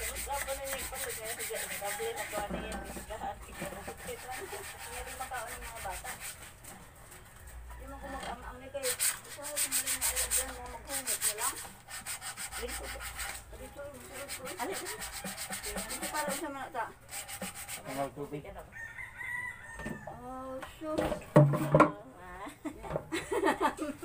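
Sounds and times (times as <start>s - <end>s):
sandpaper rubbing wood: 0.0s - 6.7s, 8.7s - 18.2s
rooster crowing: 18.7s - 20.4s.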